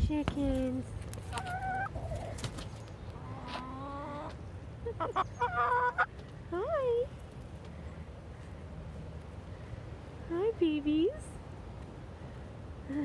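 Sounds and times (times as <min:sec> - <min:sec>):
chickens clucking and calling: 0:01.2 - 0:06.3.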